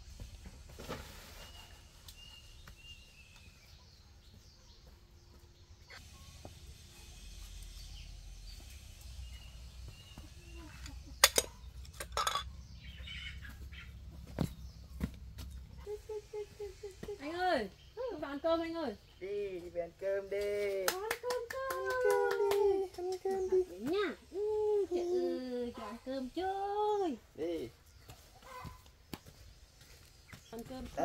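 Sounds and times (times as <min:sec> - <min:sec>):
bird chirping: 0:01.4 - 0:19.9
ceramic dishes clinking: 0:11.9 - 0:12.5.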